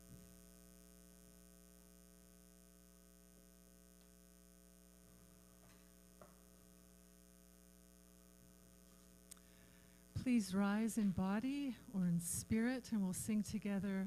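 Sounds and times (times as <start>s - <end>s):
electrical mains hum: 0.0s - 14.0s
faint ticks: 9.2s - 9.5s.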